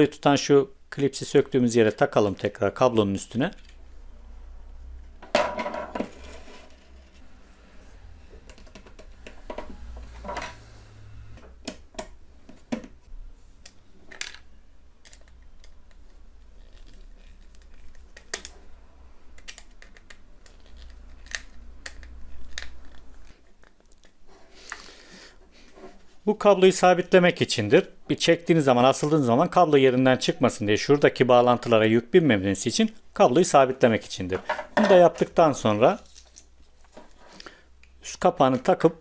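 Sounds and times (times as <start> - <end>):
small plastic parts clicking: 19.3 - 24.2.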